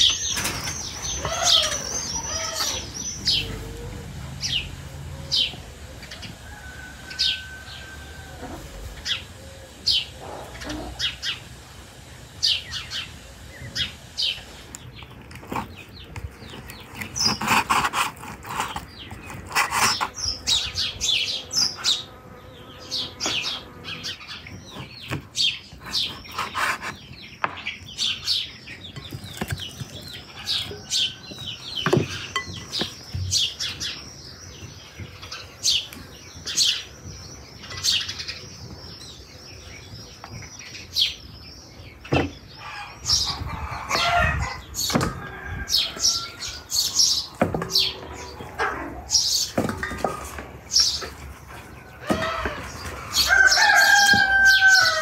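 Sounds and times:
small birds chirping: 0.0s - 11.6s, 12.4s - 55.0s.

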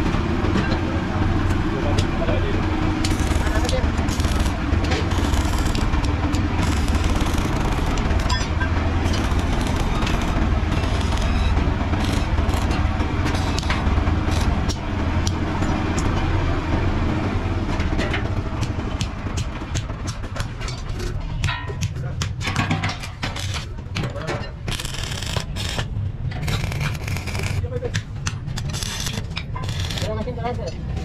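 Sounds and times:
steady low hum: 0.0s - 31.0s
welding arc crackling: 2.8s - 15.4s, 23.4s - 23.7s, 24.7s - 27.8s, 28.6s - 30.3s
sharp clicks and taps: 26.4s - 30.1s.

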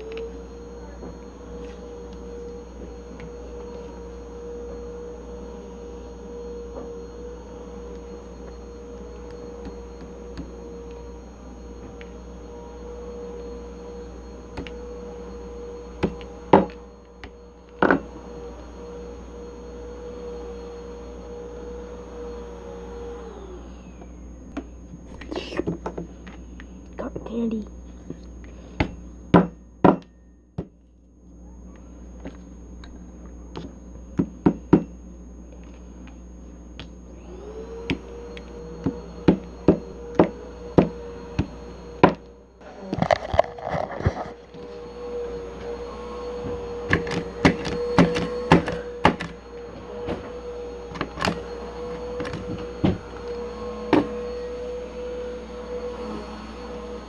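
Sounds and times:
steady background hum: 23.6s - 57.0s.

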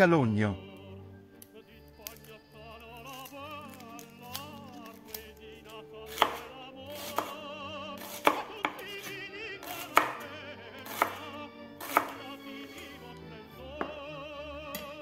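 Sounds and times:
music with operatic singing: 0.0s - 15.0s
knife chopping on cutting board: 6.1s - 12.4s.

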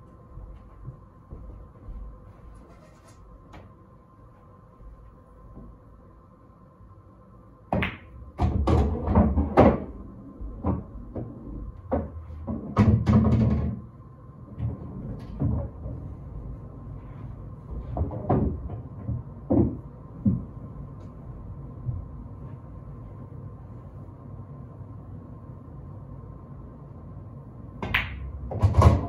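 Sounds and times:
pool balls clacking: 7.7s - 13.8s, 17.8s - 20.5s, 27.8s - 29.0s
ball rumbling into pocket: 7.8s - 13.8s.

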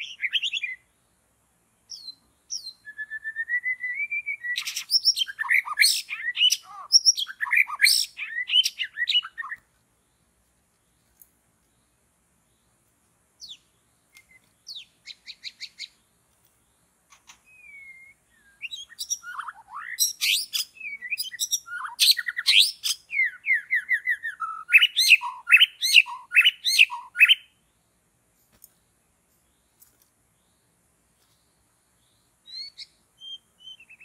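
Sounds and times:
bird singing whistles and trills: 0.0s - 0.9s, 1.9s - 9.6s, 13.4s - 16.0s, 17.2s - 27.6s, 32.0s - 34.0s.

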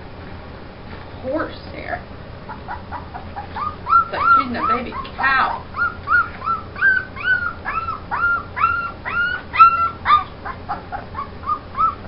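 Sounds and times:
puppy whimpering: 2.4s - 12.0s.

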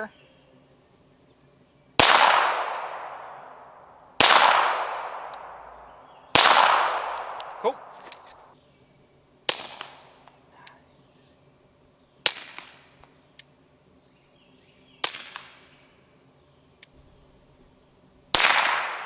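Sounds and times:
suppressed pistol shots: 2.0s - 8.5s, 18.3s - 19.0s.

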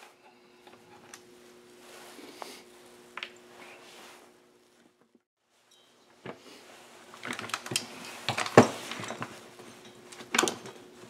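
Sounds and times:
parts clattering on workbench: 7.2s - 11.0s.

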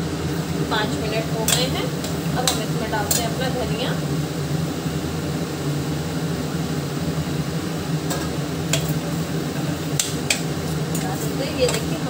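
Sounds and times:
food frying in a pot: 0.0s - 12.0s
low machine hum: 0.0s - 12.0s
spoon clicking on pot: 11.6s - 11.9s.

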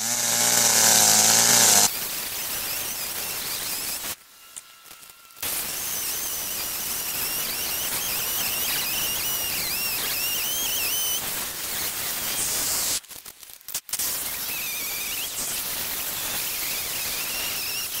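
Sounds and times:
chainsaw cutting into tree trunk: 0.0s - 1.9s.

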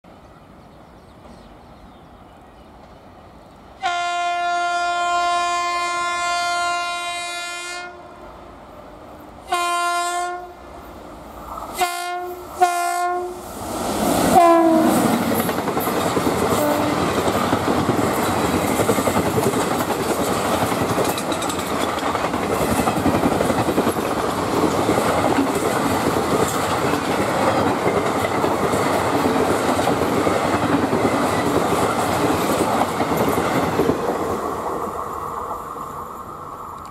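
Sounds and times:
locomotive horn blasts: 3.8s - 8.0s, 9.5s - 10.6s, 11.8s - 13.4s, 14.4s - 15.0s, 16.6s - 17.0s
train wheels clattering on track: 13.9s - 35.2s.

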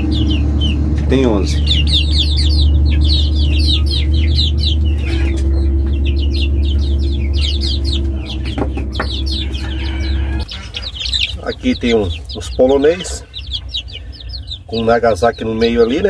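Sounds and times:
chicks peeping: 0.0s - 16.0s
steady low hum: 0.0s - 16.0s.

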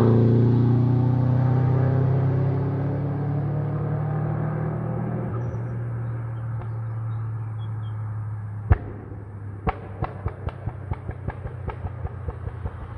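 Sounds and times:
car engine drone: 0.0s - 12.9s
exhaust popping: 8.6s - 12.9s.

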